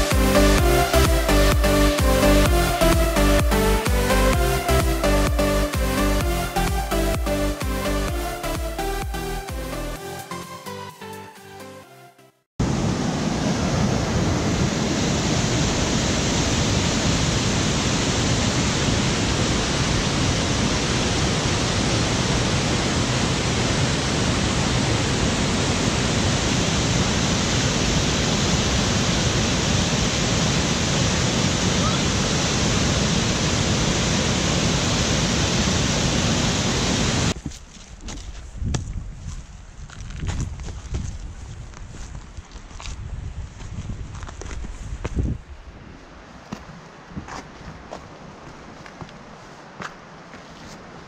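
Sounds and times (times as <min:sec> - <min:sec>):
rush of falling water: 0:12.6 - 0:37.4.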